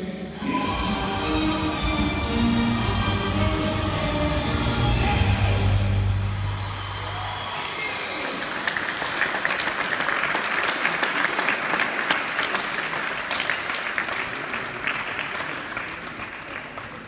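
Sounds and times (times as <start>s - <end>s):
audience applauding: 0.7s - 17.0s.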